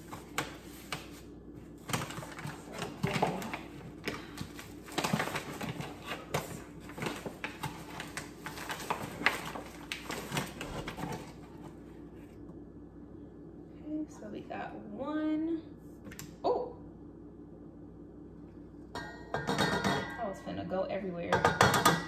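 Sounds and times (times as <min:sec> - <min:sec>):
paper bag rustling and crinkling: 0:00.0 - 0:11.8.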